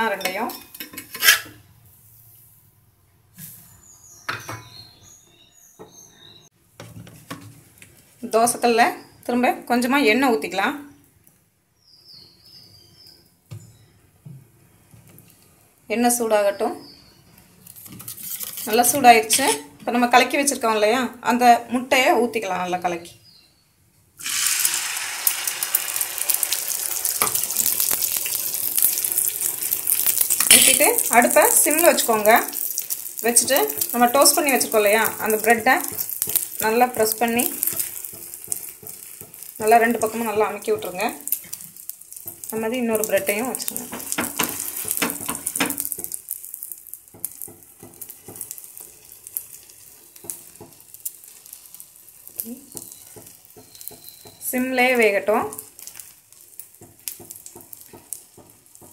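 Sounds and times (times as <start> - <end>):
batter sizzling in hot oil: 15.0 - 20.7, 24.2 - 58.9.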